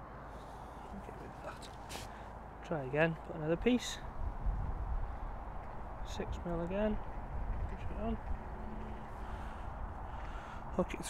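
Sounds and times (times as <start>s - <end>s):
wind buffeting the microphone: 3.6s - 11.0s.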